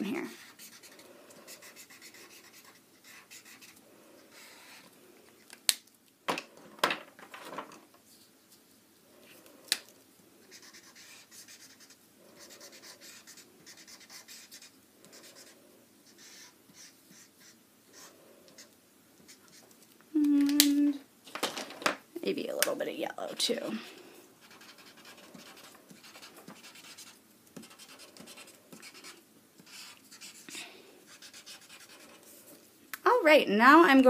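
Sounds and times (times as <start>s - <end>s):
markers scratching on paper: 0.0s - 4.8s, 10.4s - 19.9s, 24.4s - 32.4s.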